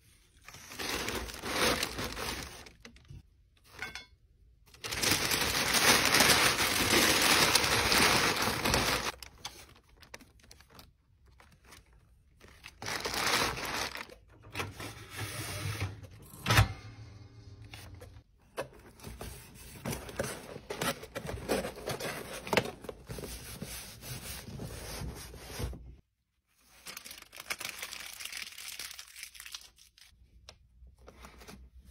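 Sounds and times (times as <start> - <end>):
tissue paper crinkling: 0.2 - 3.0, 4.8 - 14.2, 26.6 - 30.1.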